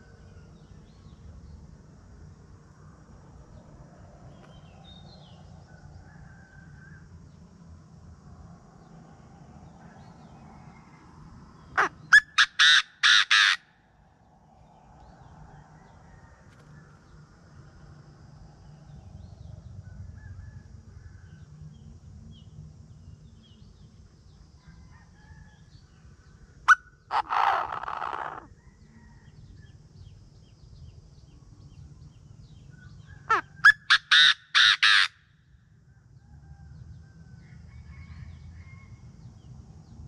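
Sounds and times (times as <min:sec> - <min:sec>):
francolin harsh call: 0:11.7 - 0:13.8, 0:26.7 - 0:28.5, 0:33.1 - 0:35.4.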